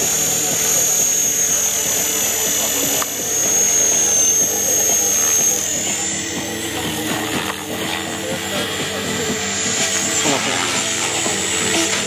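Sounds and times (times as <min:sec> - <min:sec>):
electric motor high whine: 0:00.0 - 0:12.0
rotor humming: 0:00.0 - 0:12.0.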